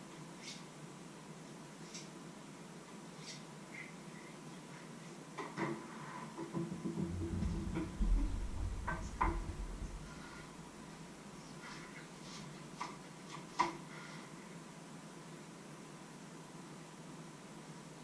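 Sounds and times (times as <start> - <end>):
low rumble of movement: 6.9 - 11.1.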